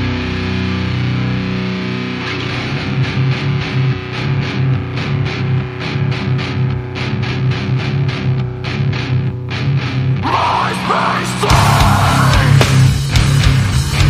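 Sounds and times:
distorted electric guitar: 0.0 - 14.0
fast drum beat: 11.4 - 14.0.

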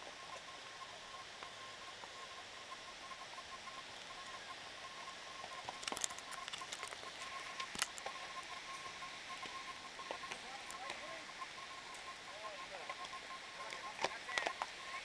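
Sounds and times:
sharp clicks: 5.4 - 8.6, 12.8 - 14.8.

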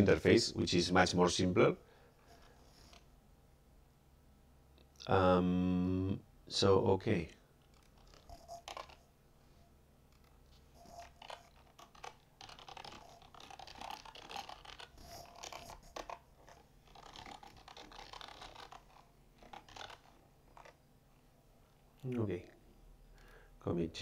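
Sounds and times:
faint typing on a keyboard: 7.4 - 9.1, 10.1 - 20.8, 21.6 - 22.6.

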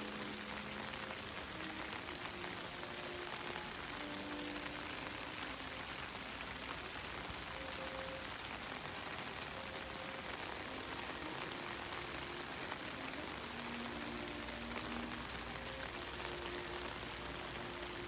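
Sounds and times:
rain pattering on leaves: 0.0 - 18.0.

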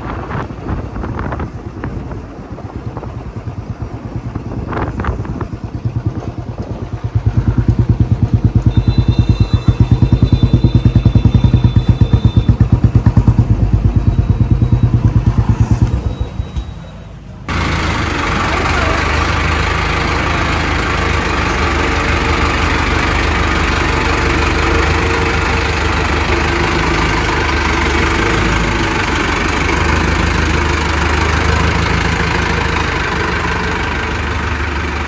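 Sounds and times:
motorcycle engine ticking over: 0.0 - 35.0.

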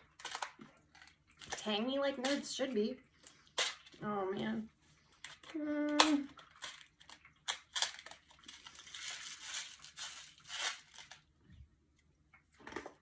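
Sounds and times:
hard candies rattling in box: 6.2 - 11.3.

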